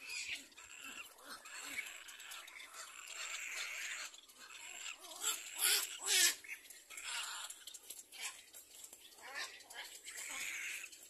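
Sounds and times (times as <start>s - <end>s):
chicks crying raspy calls: 0.0s - 8.4s.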